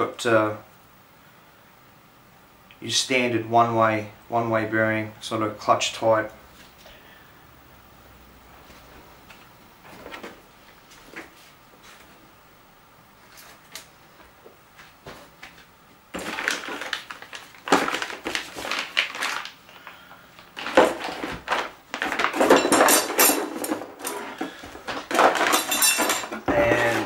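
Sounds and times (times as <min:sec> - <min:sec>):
plastic bags crinkling: 0:15.5 - 0:27.0.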